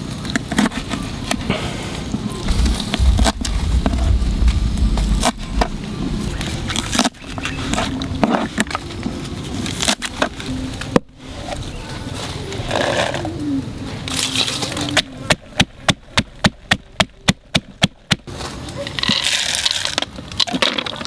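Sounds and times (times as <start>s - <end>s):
low rumble: 2.3s - 9.8s.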